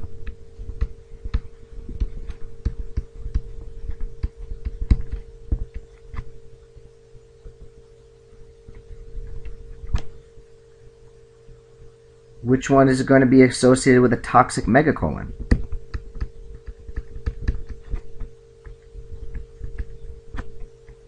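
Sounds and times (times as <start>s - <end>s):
electrical hum: 0.0s - 21.0s
pen tapping on paper: 0.2s - 6.3s, 15.4s - 20.7s.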